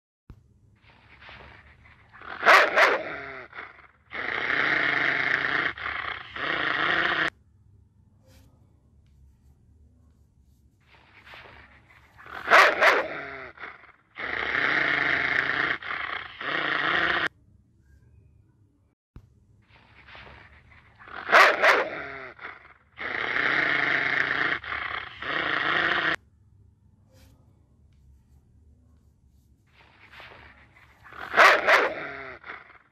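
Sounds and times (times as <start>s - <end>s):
dog growling: 1.1s - 7.3s, 11.3s - 17.3s, 20.2s - 26.2s, 30.1s - 32.9s
dog barking: 2.2s - 3.9s, 11.6s - 13.9s, 20.4s - 23.4s, 30.4s - 32.8s
large dog barking: 2.2s - 7.3s, 12.2s - 14.6s, 21.0s - 26.2s, 31.0s - 32.8s.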